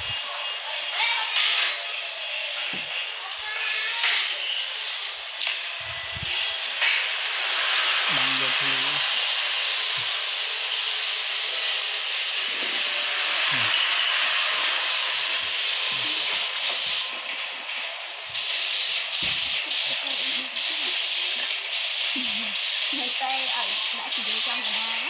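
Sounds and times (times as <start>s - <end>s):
spray gun hissing: 7.1s - 17.2s, 18.3s - 25.0s.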